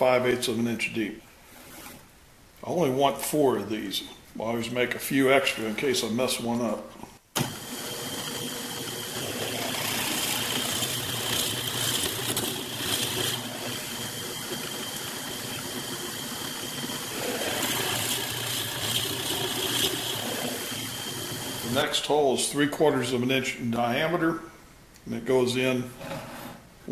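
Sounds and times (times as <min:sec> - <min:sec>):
bit cutting into wood: 0:07.4 - 0:21.6
drill press motor whine: 0:07.4 - 0:21.8.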